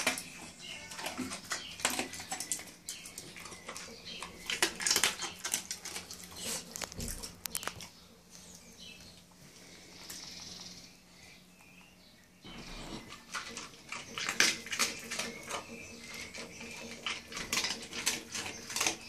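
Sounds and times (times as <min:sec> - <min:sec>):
dog crunching kibble in metal bowl: 0:00.0 - 0:07.9, 0:12.4 - 0:19.0.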